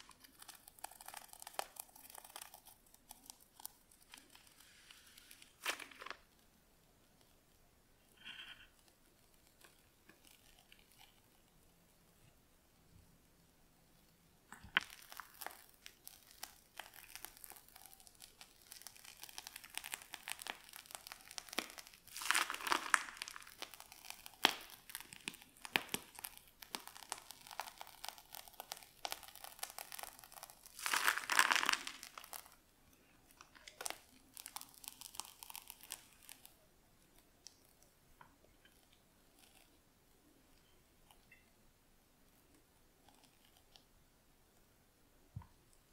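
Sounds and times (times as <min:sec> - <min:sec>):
cream squishing: 0:00.0 - 0:06.5, 0:08.2 - 0:11.8, 0:14.0 - 0:41.5
plastic bag crinkling: 0:14.5 - 0:32.6, 0:33.3 - 0:36.6.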